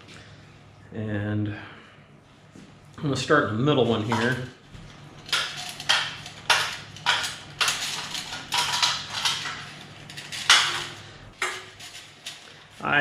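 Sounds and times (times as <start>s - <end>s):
wire scraping against metal rack: 4.0s - 12.7s.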